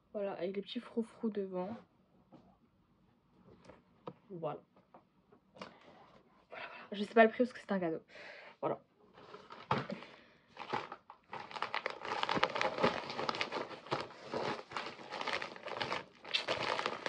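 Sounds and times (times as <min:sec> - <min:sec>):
packaging crinkling and rustling: 0:09.2 - 0:17.0.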